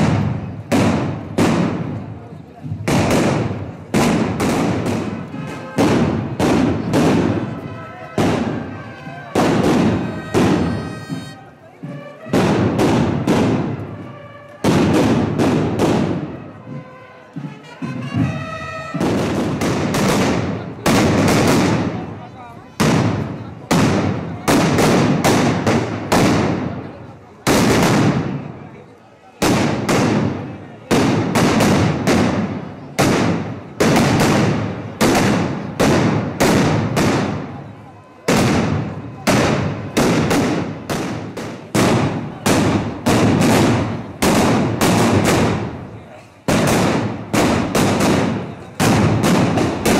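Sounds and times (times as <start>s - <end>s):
low drum beats: 0.0s - 22.0s
firecrackers banging: 0.0s - 49.9s
band playing: 4.9s - 15.2s, 16.2s - 19.7s.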